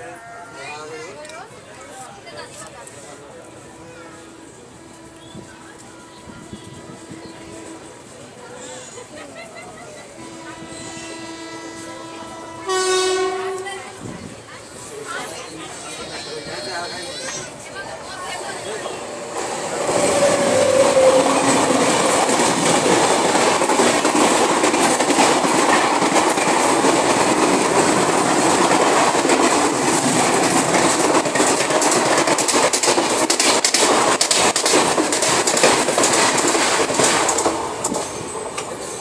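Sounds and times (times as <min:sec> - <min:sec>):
passing train rushing by: 0:00.0 - 0:39.0
train wheels clattering over rail joints: 0:19.4 - 0:39.0.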